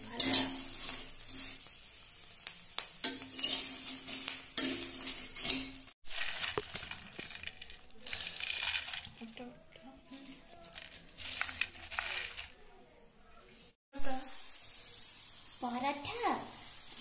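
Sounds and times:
metal spatula scraping in oil: 0.0 - 1.7, 3.0 - 8.8
deep-frying sizzle: 0.0 - 9.2, 14.0 - 17.0.

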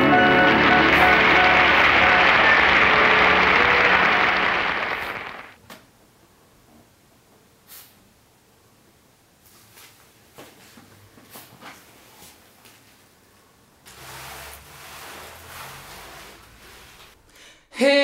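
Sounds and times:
held notes of a song: 0.0 - 5.4
applause: 0.0 - 5.6.

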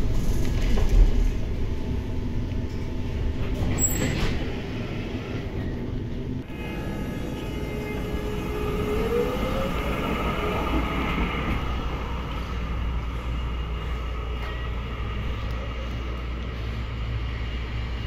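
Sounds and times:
tram rumbling: 0.0 - 18.0
tram motor whine rising: 4.6 - 18.0.

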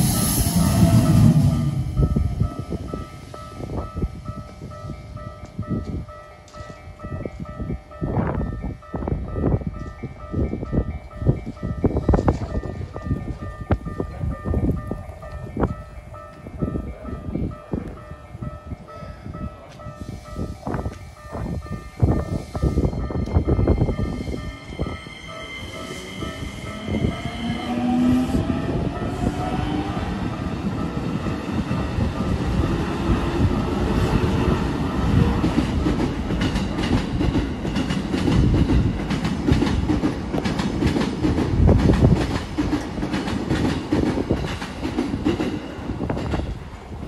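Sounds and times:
level crossing warning bell: 0.0 - 38.2
train wheels clacking over rail joints: 35.4 - 46.6.

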